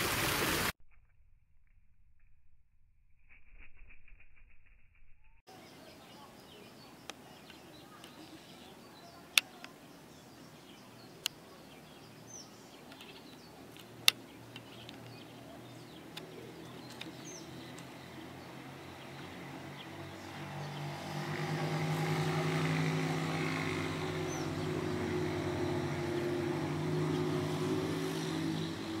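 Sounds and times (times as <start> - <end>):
vehicle engine hum: 2.0 - 29.0
faint high bird chirps: 3.8 - 20.8
sharp clicks: 12.8 - 18.0.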